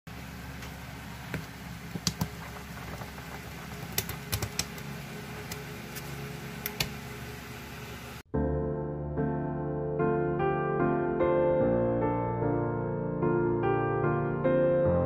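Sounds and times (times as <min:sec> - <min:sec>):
soft piano music: 0:08.3 - 0:15.0.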